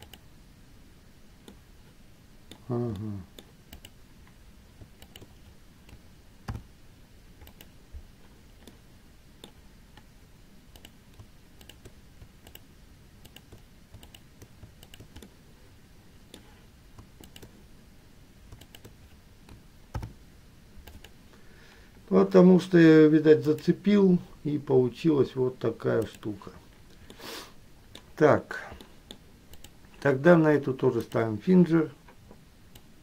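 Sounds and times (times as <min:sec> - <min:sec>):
mouse and keyboard clicks: 0:04.8 - 0:06.6, 0:10.7 - 0:12.6, 0:13.2 - 0:15.3, 0:16.3 - 0:17.6, 0:18.5 - 0:20.2, 0:20.8 - 0:21.2.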